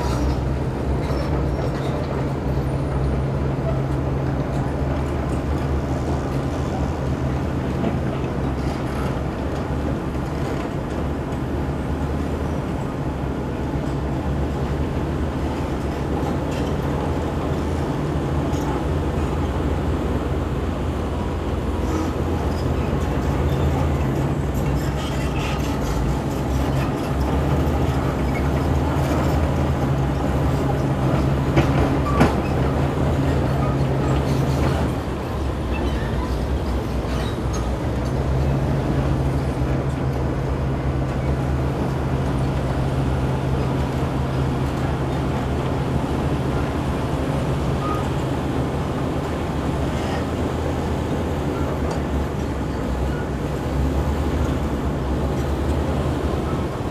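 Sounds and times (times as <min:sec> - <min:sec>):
diesel engines running: 0:00.0 - 0:56.9
steel tracks clanking: 0:00.0 - 0:56.9.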